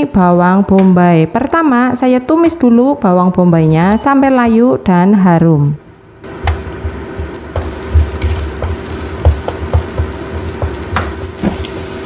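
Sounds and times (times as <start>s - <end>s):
onions sizzling in oil: 6.0s - 12.0s
wooden spatula scraping a pan: 7.5s - 12.0s.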